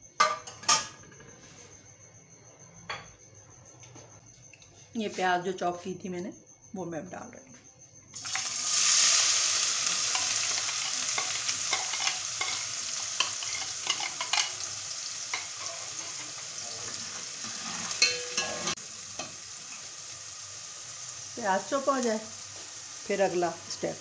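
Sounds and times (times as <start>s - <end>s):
onions sizzling in hot oil: 8.1s - 24.0s
metal spoon clinking against pot: 10.1s - 14.6s, 18.0s - 19.3s.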